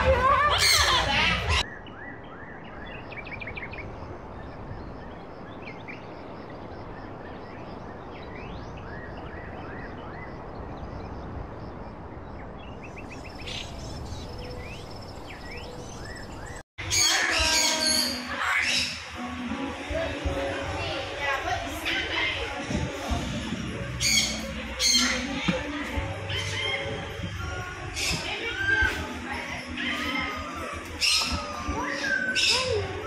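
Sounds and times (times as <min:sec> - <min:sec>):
small birds chirping: 0:00.5 - 0:19.1.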